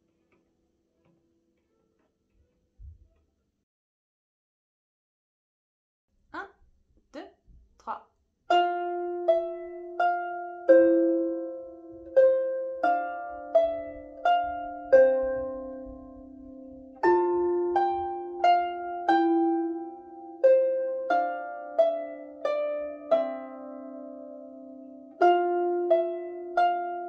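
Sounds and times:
harp plucked notes: 8.5s - 27.0s.

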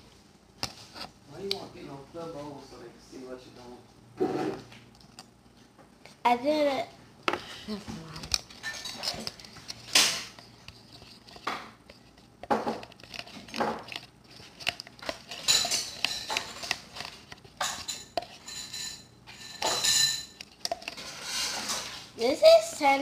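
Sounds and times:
spoon scraping a plastic cup: 8.3s - 22.0s.

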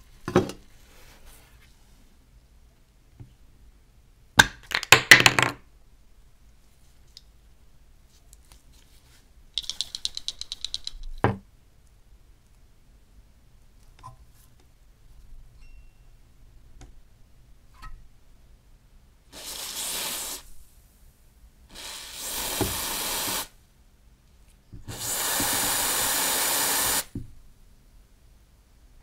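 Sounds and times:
aerosol can hissing: 19.3s - 20.6s, 21.7s - 23.6s, 24.8s - 27.2s.

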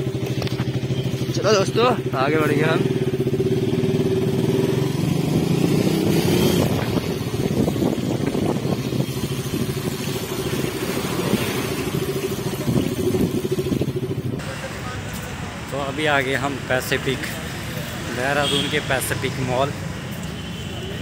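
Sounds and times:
motorcycle engine at low revs: 0.0s - 14.5s.

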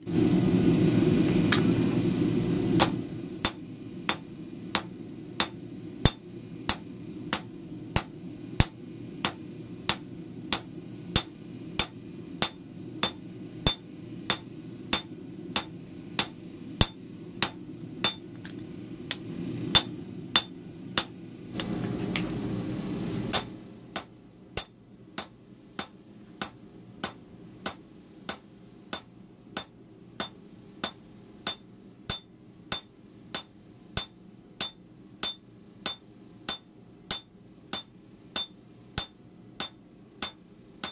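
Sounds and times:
hammer ringing on anvil: 2.8s - 18.3s, 19.8s - 21.2s, 23.3s - 40.9s.

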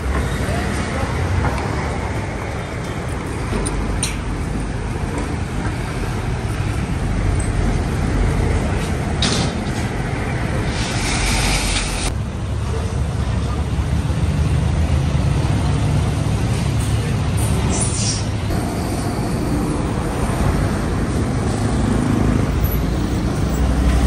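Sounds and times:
vehicles passing: 0.0s - 24.0s
hiss: 10.6s - 12.1s, 17.7s - 18.3s.

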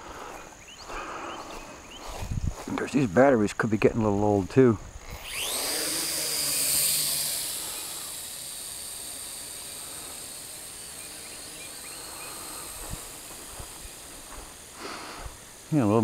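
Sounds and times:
quadcopter motors whining: 4.1s - 16.0s.

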